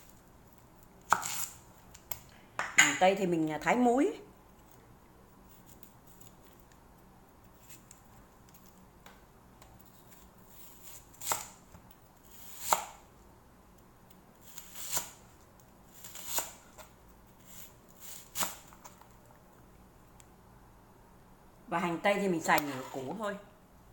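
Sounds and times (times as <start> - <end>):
knife cutting onion on board: 1.0 - 1.6, 10.0 - 13.0, 14.4 - 15.2, 15.9 - 18.9.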